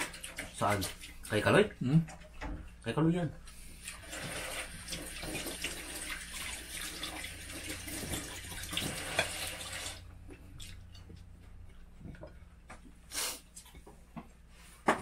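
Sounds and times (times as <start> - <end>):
faucet running into sink: 3.5 - 10.1.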